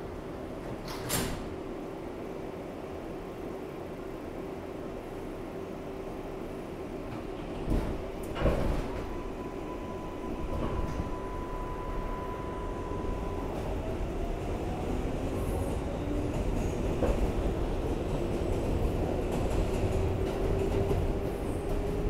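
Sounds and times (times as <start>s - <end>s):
train wheels rumbling on rail: 5.3s - 22.0s
train whine rising in pitch: 9.2s - 14.4s.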